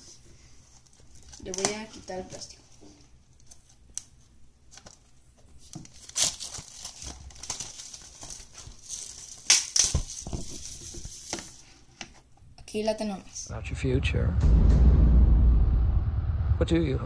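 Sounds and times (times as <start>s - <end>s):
plastic wrap crinkling: 3.3s - 11.7s.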